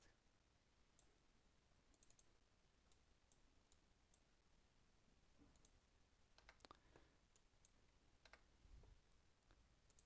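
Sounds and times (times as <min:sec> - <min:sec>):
computer mouse clicks: 0:01.9 - 0:04.3, 0:05.4 - 0:08.5, 0:09.4 - 0:10.0.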